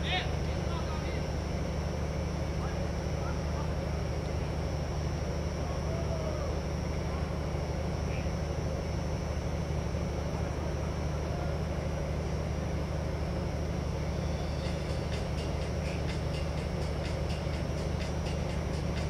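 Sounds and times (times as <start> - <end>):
low hum and hiss: 0.0 - 19.0
distant shouts of players: 5.6 - 6.8.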